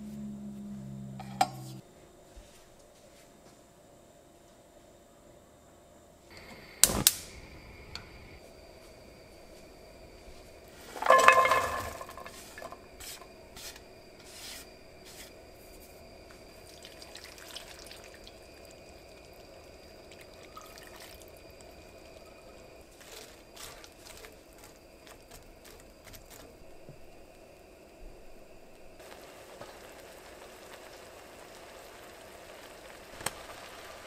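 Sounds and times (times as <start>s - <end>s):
faint steady hum: 0.0s - 34.0s
frying pan knocking on metal grate: 11.0s - 12.8s
onion tipped into pan: 11.0s - 12.8s.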